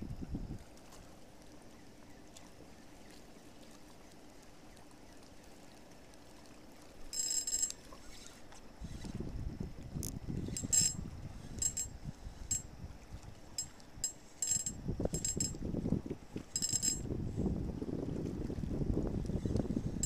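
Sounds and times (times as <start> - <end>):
water lapping against shore: 0.0 - 20.0
high-pitched metallic rattle: 7.1 - 7.9, 10.4 - 12.7, 13.6 - 15.6, 16.5 - 17.1.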